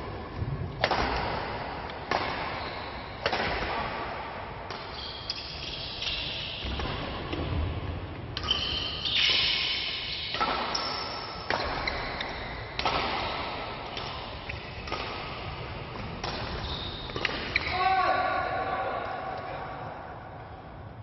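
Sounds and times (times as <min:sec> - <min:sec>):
rackets hitting shuttlecock: 0:00.8 - 0:07.6, 0:08.4 - 0:17.8
shoes squeaking on court floor: 0:02.5 - 0:03.0, 0:04.8 - 0:07.0, 0:08.4 - 0:12.6, 0:15.9 - 0:17.8.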